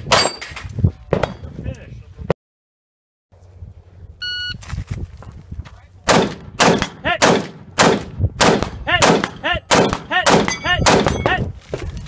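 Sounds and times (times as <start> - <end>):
rapid gunshots: 6.1 - 11.1.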